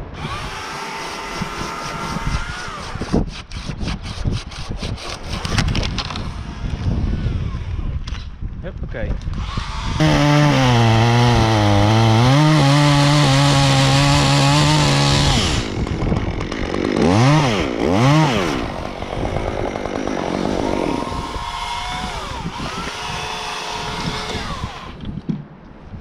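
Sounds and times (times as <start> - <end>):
chainsaw cutting and revving: 0.0 - 3.7, 9.4 - 25.0
chainsaw idling: 10.0 - 25.0.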